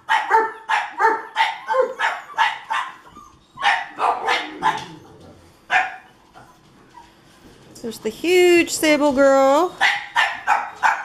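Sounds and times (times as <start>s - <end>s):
puppy yapping: 0.0s - 7.2s, 9.7s - 11.0s.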